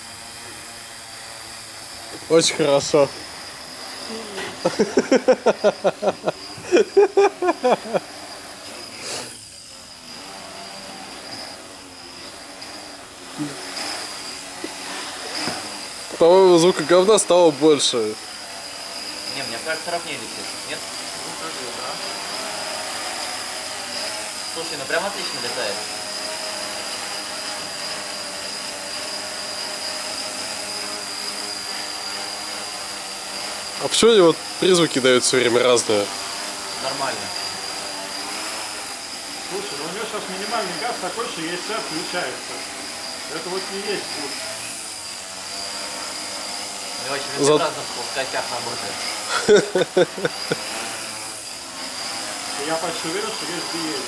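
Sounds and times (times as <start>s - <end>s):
quadcopter hovering whine: 0.0s - 54.0s
person laughing: 4.1s - 8.2s, 13.4s - 13.6s, 49.2s - 50.8s.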